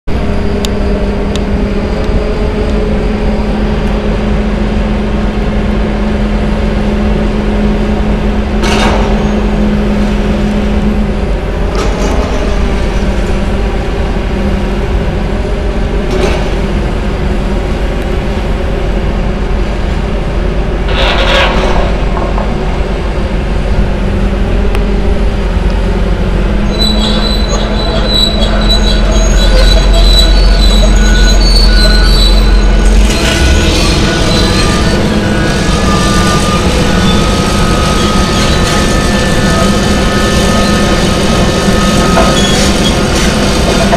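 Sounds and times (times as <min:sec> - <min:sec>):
high-pitched metallic squealing: 0:00.1 - 0:05.4, 0:20.7 - 0:43.9
excavator diesel engines running: 0:00.1 - 0:43.9.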